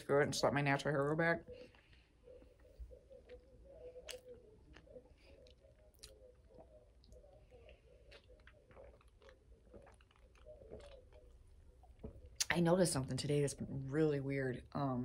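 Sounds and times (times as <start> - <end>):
faint steady hum: 0.0 - 15.0
mouth chewing soft food: 1.4 - 12.5
mouth clicks and smacks: 2.7 - 12.5.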